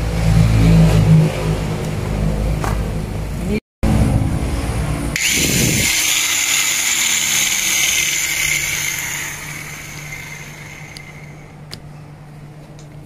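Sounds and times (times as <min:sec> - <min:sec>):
low tone sliding down in pitch: 0:03.8 - 0:06.0
motor running: 0:05.1 - 0:11.8.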